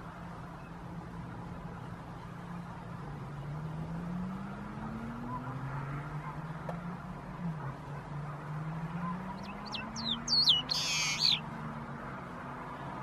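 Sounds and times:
bird calling with sliding whistles: 0:09.4 - 0:11.4.

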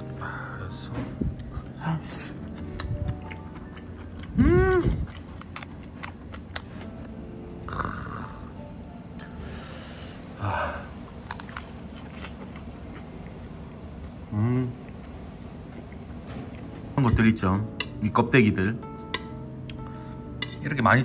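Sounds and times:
man humming nasally: 0:04.4 - 0:05.1, 0:14.2 - 0:14.9
lettuce wrap rustling: 0:11.1 - 0:13.5.

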